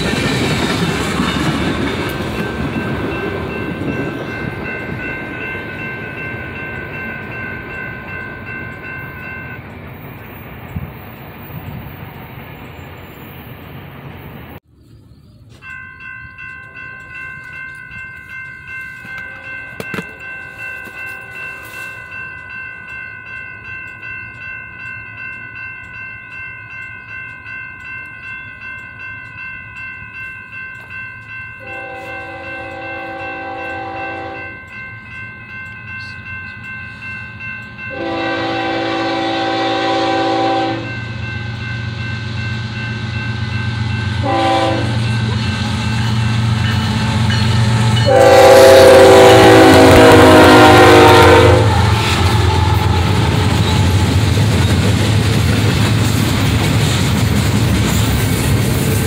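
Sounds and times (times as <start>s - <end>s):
crossing bell ringing: 0.0s - 14.6s, 15.3s - 59.0s
train air horn blasts: 31.6s - 34.6s, 37.9s - 41.0s, 44.2s - 45.2s, 46.5s - 54.1s
diesel locomotive rumble: 31.6s - 59.0s.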